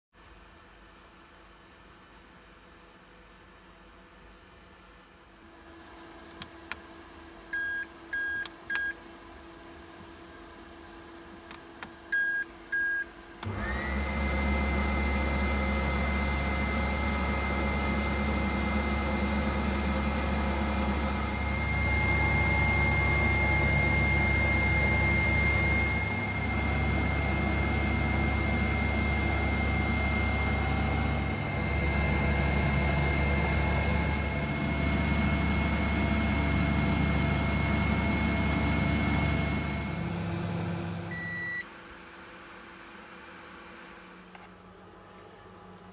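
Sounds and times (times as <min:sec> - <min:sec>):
air fryer fan hum: 0:00.2 - 0:45.9
control panel beeps: 0:07.6 - 0:09.0, 0:12.1 - 0:13.1, 0:41.1 - 0:41.6.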